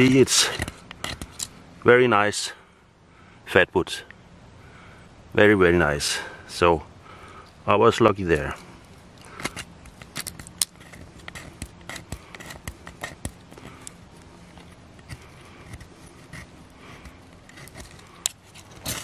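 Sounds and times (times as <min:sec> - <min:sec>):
knife scraping wood: 0:00.0 - 0:01.5, 0:09.2 - 0:19.0.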